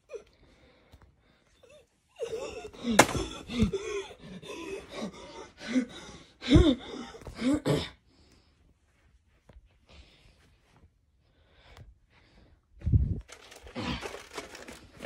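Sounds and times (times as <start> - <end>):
young person gasping and groaning: 1.7 - 8.1.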